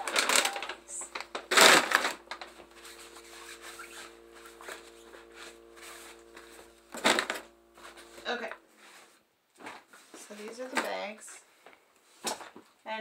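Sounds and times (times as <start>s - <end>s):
steady hum: 0.0s - 8.8s
plastic crinkling and rustling: 0.0s - 12.8s.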